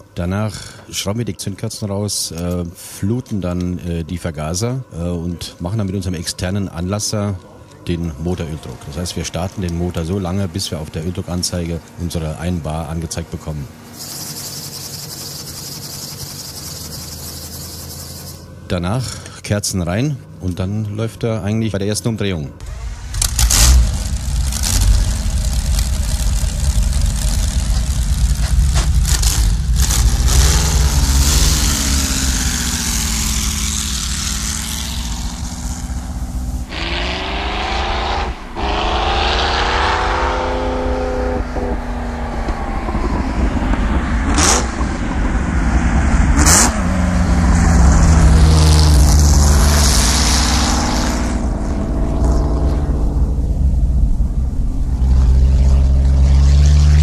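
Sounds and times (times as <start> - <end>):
racing car engine revving: 5.1 - 19.3, 22.6 - 57.0
sharp cracks: 22.6 - 40.4.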